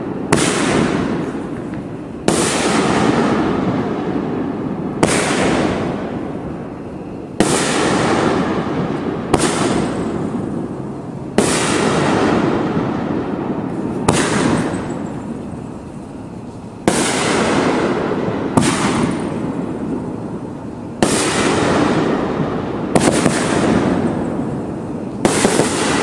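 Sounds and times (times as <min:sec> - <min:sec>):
firework bangs: 0:00.0 - 0:26.0.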